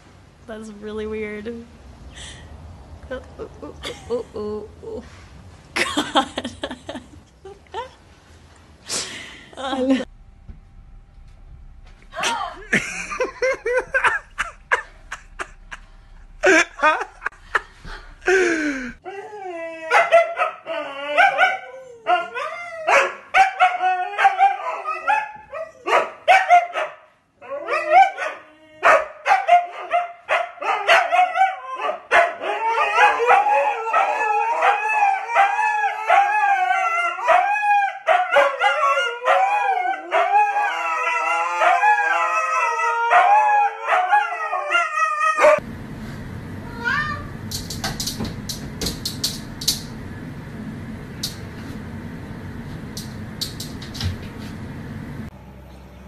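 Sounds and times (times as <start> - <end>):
dog howling: 19.0 - 26.0, 30.6 - 45.6
dog barking and yipping: 19.9 - 40.5, 41.2 - 42.4, 43.0 - 45.6.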